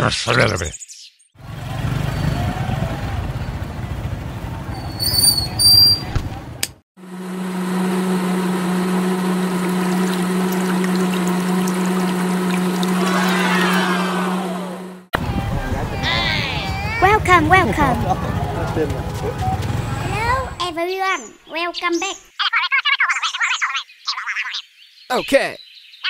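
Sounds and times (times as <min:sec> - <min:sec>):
small electric motor humming: 0:07.0 - 0:15.1
rough rumbling noise: 0:08.5 - 0:20.6.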